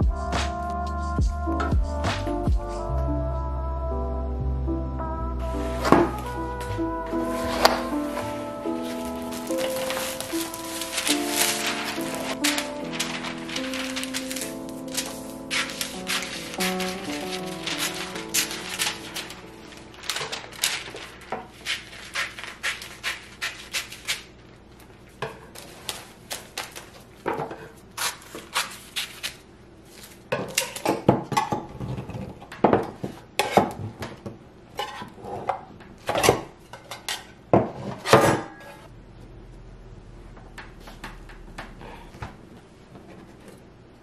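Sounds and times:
scissors cutting paper: 7.5 - 24.3, 28.0 - 29.4.

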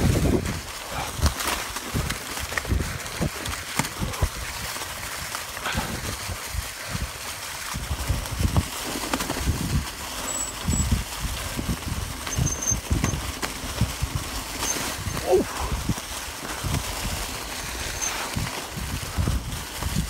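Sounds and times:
bike tyres on dirt trail: 0.0 - 20.0
wind rumbling on microphone: 0.0 - 20.0.

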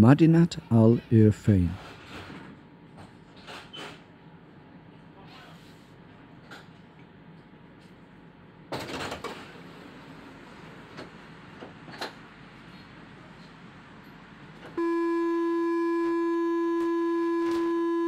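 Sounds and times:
tram warning horn: 14.8 - 18.0.

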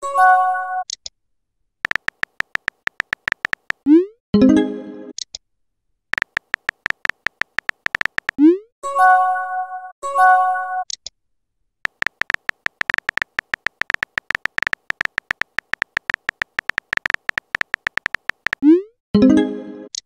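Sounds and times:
virtual keyboard clicks: 1.8 - 3.9, 6.2 - 8.5, 11.9 - 18.7.

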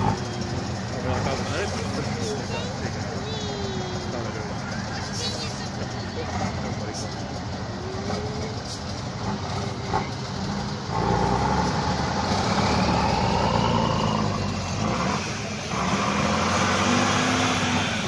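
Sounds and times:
truck diesel engine revving: 0.0 - 18.0.

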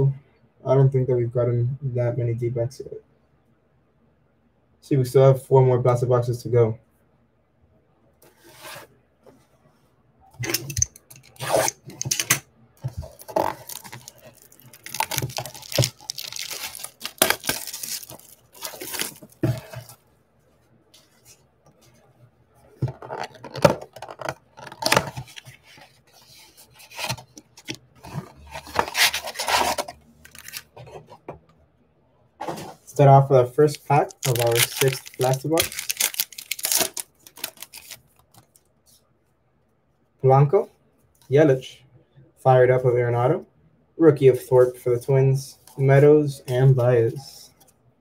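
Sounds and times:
plastic shrink wrap tearing: 12.8 - 19.8, 28.8 - 30.7, 34.0 - 38.5
cardboard box tearing: 13.0 - 19.9, 28.7 - 30.7, 34.2 - 38.0.

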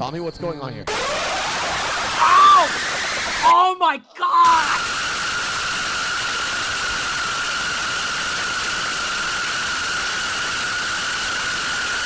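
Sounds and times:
harsh electronic hiss: 0.9 - 3.8
steady high-pitched tone: 0.9 - 3.8.

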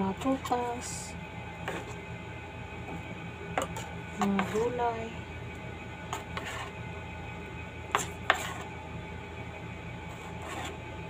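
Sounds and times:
low background hum: 0.0 - 11.0
scraping on plastic cutting board: 1.6 - 2.0, 3.6 - 4.7, 6.1 - 6.8, 7.9 - 8.7, 10.1 - 10.8.

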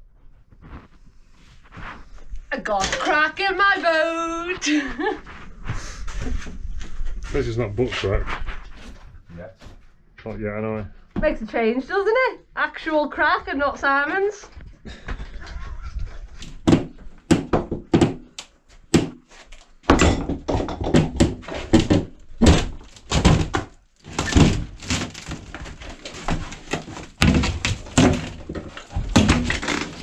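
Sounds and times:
knocks and thuds: 16.6 - 18.3, 19.9 - 30.0
plywood panel being wrenched off: 19.8 - 30.0.

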